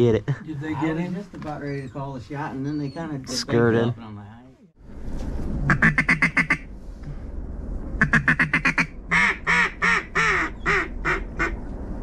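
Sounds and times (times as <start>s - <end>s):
duck call quacks: 5.7s - 6.6s, 8.0s - 11.6s.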